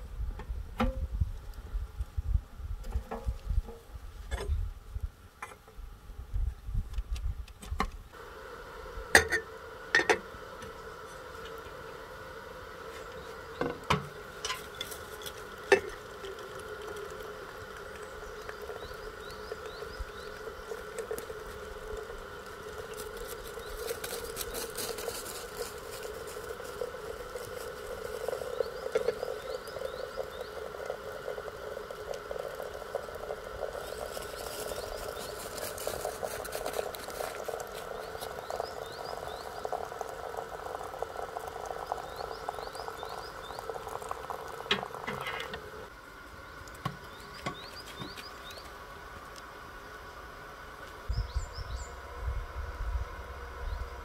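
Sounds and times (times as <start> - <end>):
frogs croaking: 15.5 - 45.5.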